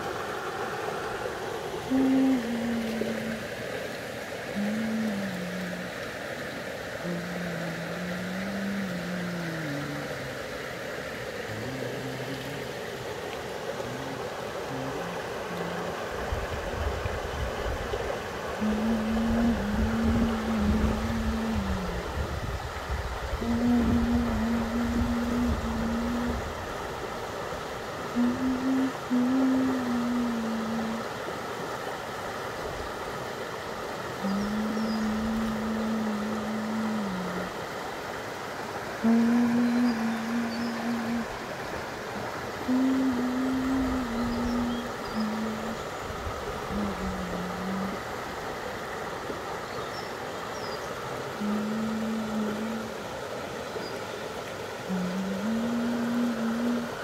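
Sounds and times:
low steady hum: 0.0 - 57.0
stream flowing over rocks: 0.0 - 57.0
faint slow tune: 1.8 - 10.4, 34.2 - 37.7, 39.0 - 41.8, 42.6 - 46.0, 51.4 - 53.1.

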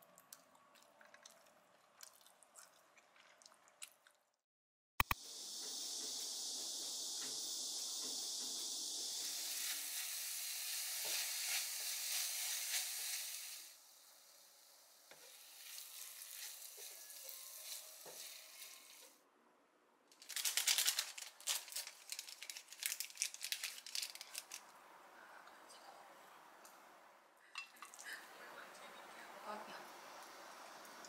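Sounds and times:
steady hiss: 5.1 - 19.2.

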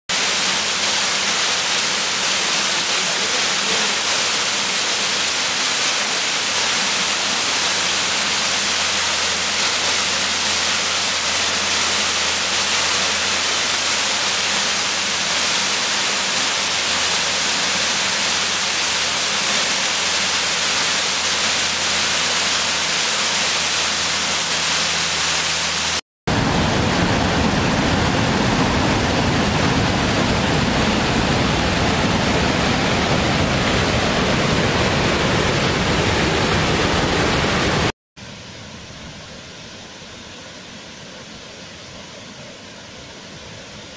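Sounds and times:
waterfall rushing: 0.1 - 38.0.

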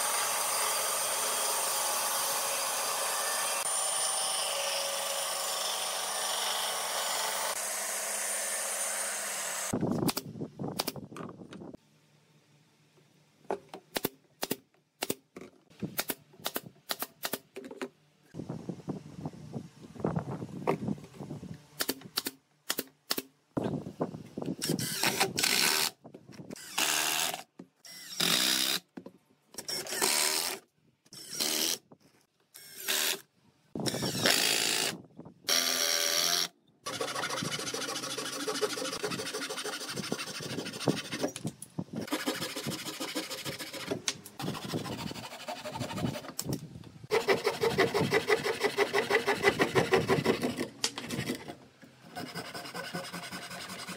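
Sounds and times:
cordless drill driving screws: 26.6 - 28.8, 29.6 - 31.8, 32.6 - 33.2, 33.8 - 41.4
handsaw cutting wood: 36.9 - 41.4, 42.0 - 46.4, 47.1 - 51.5, 52.1 - 53.9.

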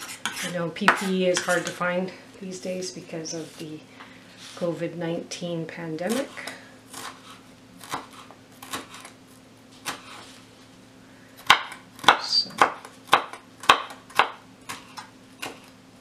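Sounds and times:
knife chopping on wooden board: 6.9 - 9.1, 9.8 - 10.2, 11.4 - 15.7.

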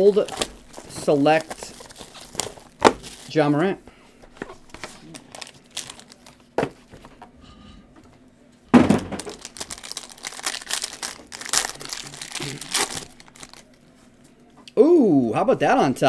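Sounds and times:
plastic foil wrapper crinkling: 0.0 - 3.4, 4.6 - 6.5, 9.1 - 13.8.

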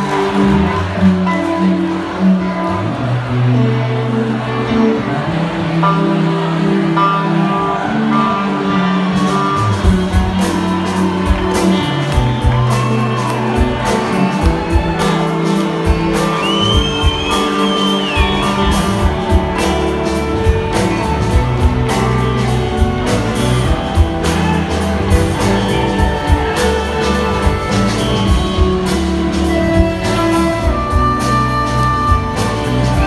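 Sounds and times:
guitar: 0.0 - 33.0
live band playing: 0.0 - 33.0
steady drum beat: 9.1 - 33.0.

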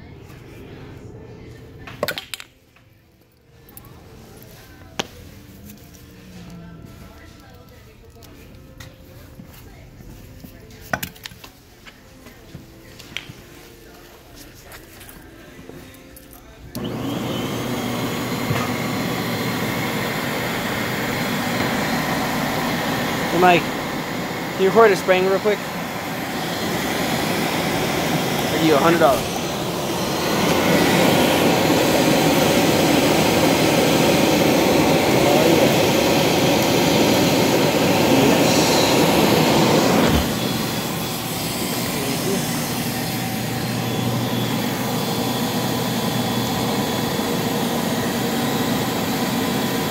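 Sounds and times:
vacuum motor running: 16.7 - 49.9.

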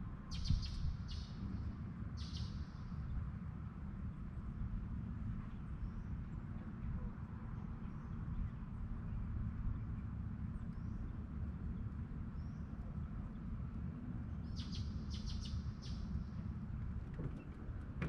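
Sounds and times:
bird chirping: 14.5 - 16.3.

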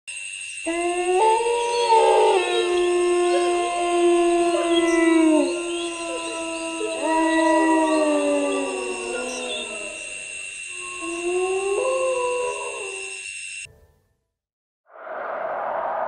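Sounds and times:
dogs howling together: 0.6 - 13.2
high-pitched drone: 0.6 - 13.6.

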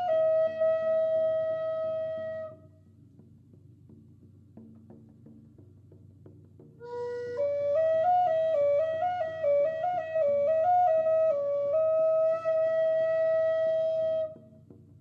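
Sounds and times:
flute melody: 0.0 - 2.6, 6.8 - 14.6.

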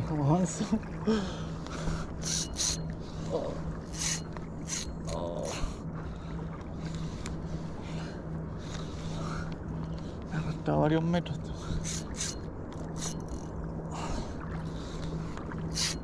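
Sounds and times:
steady low hum: 0.0 - 16.0
fishing reel cranking: 2.2 - 2.8, 3.9 - 5.0, 11.8 - 13.5, 15.7 - 16.0.

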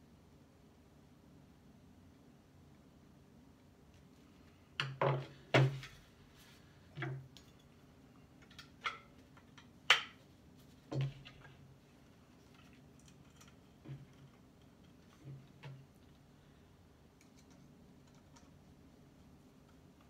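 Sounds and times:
clicks and knocks of metal and wood: 12.4 - 16.2.

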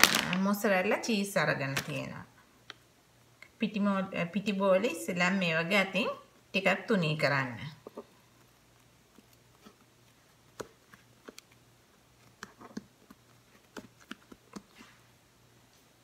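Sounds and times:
fingertips patting dough: 7.8 - 15.2.

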